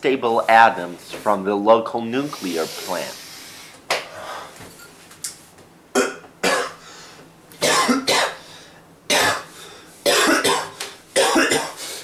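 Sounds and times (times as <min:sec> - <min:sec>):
man coughing hard: 0:06.0 - 0:06.8, 0:07.6 - 0:08.4, 0:09.1 - 0:11.8.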